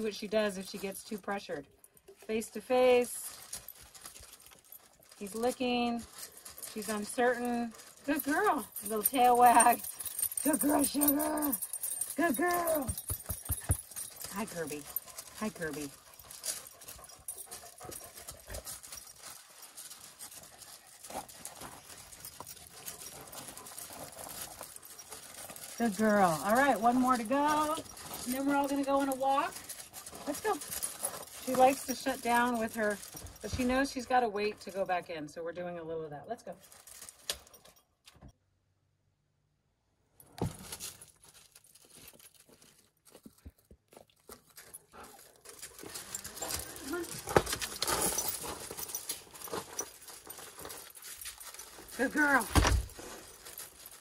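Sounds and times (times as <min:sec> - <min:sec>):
footsteps on gravel: 0:07.5 - 0:33.6.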